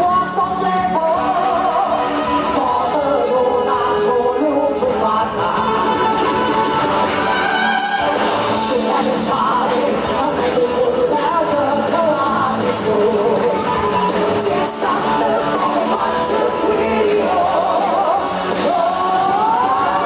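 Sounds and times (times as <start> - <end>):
band with guitar keyboard and drums: 0.0 - 20.0
woman singing into a microphone: 14.4 - 20.0.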